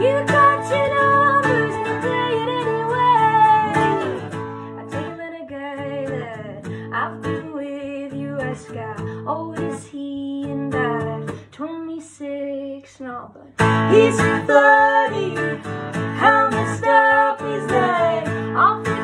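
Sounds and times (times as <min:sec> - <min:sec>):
acoustic guitar strumming: 0:00.0 - 0:07.5, 0:13.6 - 0:19.0
woman singing: 0:00.0 - 0:19.0.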